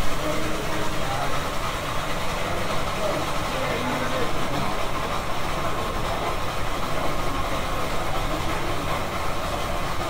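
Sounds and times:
coffee shop room rumble: 0:00.0 - 0:10.0.

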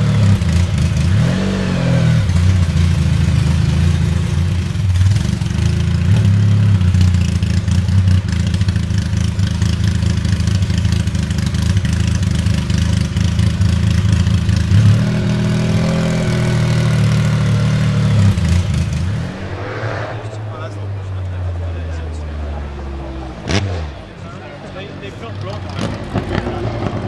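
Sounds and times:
car engine idling with deep rumble: 0:02.2 - 0:19.0.

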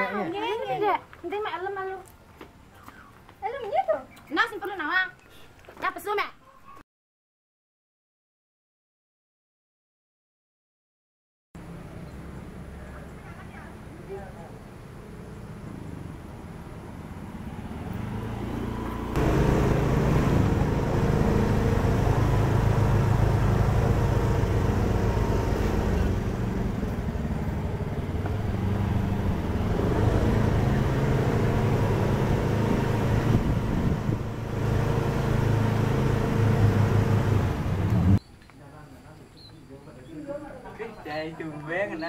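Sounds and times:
motor scooter engine running: 0:18.5 - 0:38.2.

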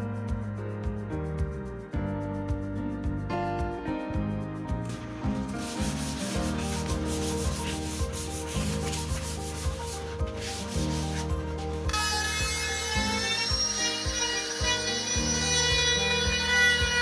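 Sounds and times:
sandpaper rubbing on wood: 0:04.9 - 0:17.0.

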